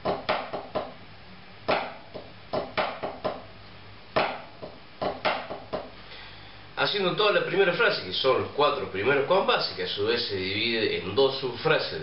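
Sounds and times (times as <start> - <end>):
drumsticks tapping on practice pad: 0.0 - 1.0, 1.7 - 3.5, 4.1 - 6.0.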